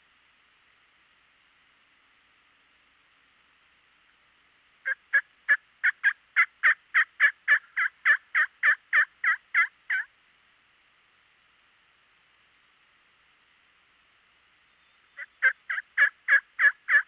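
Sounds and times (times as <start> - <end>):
turkey yelps: 4.8 - 10.1, 15.2 - 17.0.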